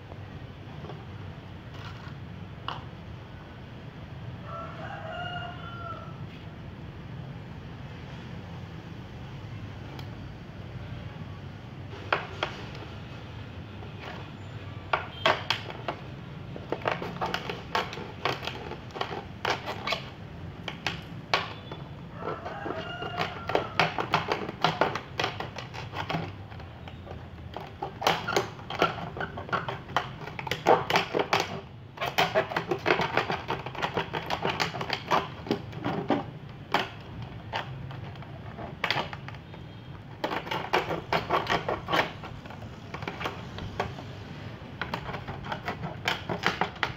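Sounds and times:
plastic bottle crackling: 0:15.0 - 0:46.9.

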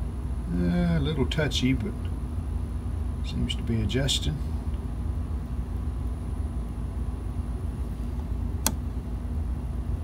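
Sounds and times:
low rumble and hum: 0:00.0 - 0:10.0
rotary switch click: 0:08.6 - 0:08.8.

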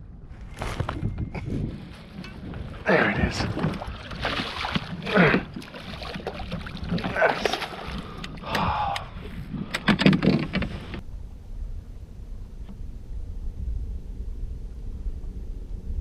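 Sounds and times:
low wind rumble: 0:00.0 - 0:16.0
water sloshing and splashing: 0:01.8 - 0:08.8.

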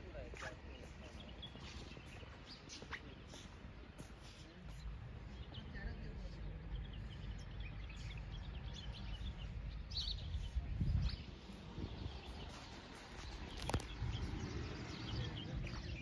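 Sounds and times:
small birds chirping: 0:00.0 - 0:16.0
steady low rumble: 0:04.8 - 0:16.0.

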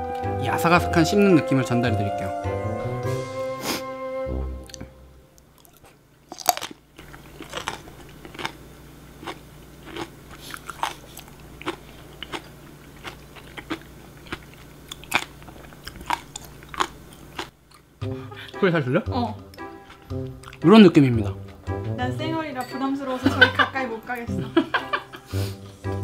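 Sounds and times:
crunchy chewing: 0:05.6 - 0:17.9, 0:19.5 - 0:20.7.

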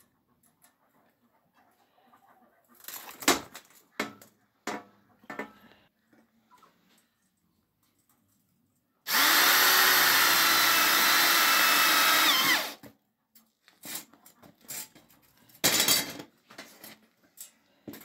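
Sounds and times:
electric drill drilling into steel: 0:09.1 - 0:12.8.

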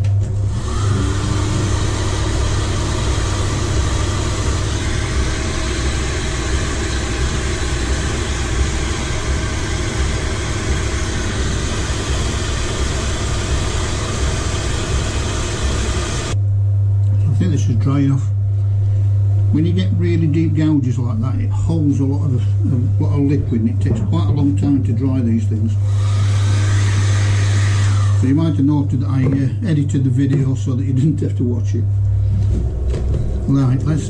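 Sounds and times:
fan whine spinning up: 0:00.0 - 0:34.0
heat gun blowing: 0:00.3 - 0:16.4, 0:25.8 - 0:28.3.

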